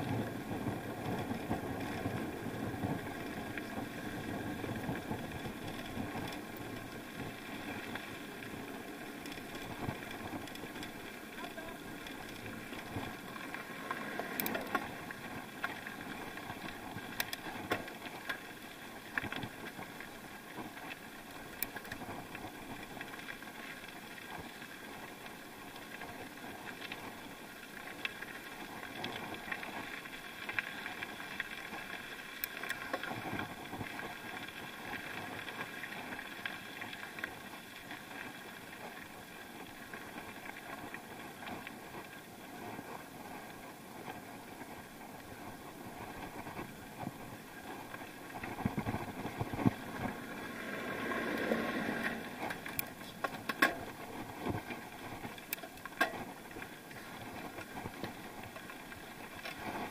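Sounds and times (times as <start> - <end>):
bike running noise: 0.0 - 59.9.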